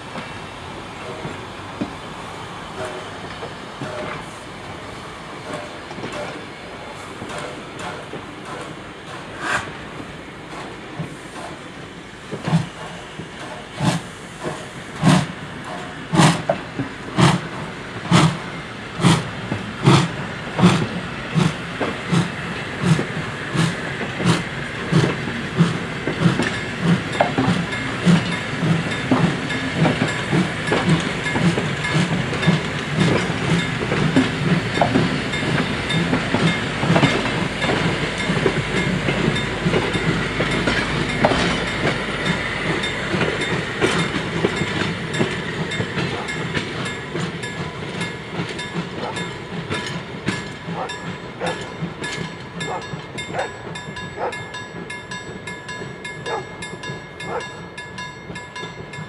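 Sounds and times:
train coaches rolling on rails: 0.0 - 59.0
steam locomotive exhaust chuffs: 0.9 - 59.0.

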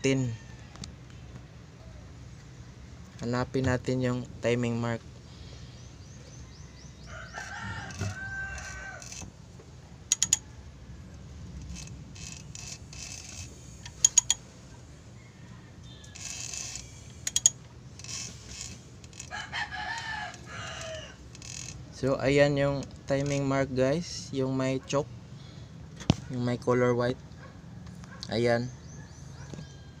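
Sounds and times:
rooster crowing: 0.0 - 0.9, 6.5 - 9.3, 15.1 - 17.1, 19.1 - 21.8, 28.8 - 30.0
ratchet wrench clicking: 10.1 - 10.4, 11.6 - 14.4, 16.1 - 19.3.

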